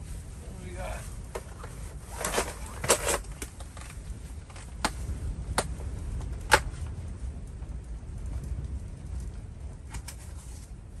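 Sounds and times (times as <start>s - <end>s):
steady low rumble: 0.0s - 11.0s
plastic tackle box clicks and rattles: 2.1s - 4.9s.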